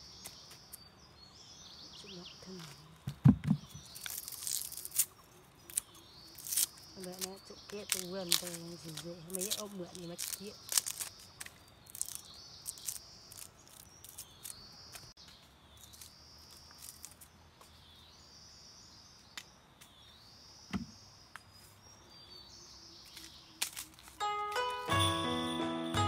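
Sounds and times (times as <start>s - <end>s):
bamboo husks snapping and tearing: 3.7s - 15.1s, 15.8s - 17.3s, 23.0s - 24.2s
high-pitched chirping calls: 3.7s - 15.2s.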